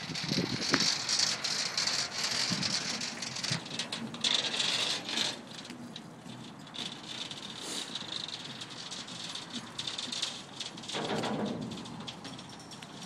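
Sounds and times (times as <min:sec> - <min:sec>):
leash handles scraping on rubber: 0:00.8 - 0:10.4.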